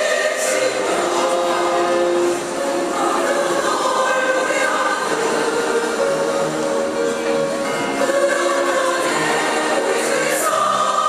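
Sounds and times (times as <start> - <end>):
women's choir singing: 0.0 - 11.0.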